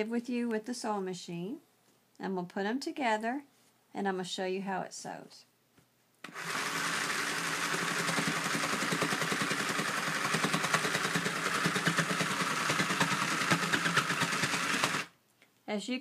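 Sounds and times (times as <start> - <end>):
toy sewing machine motor humming: 6.3 - 15.1.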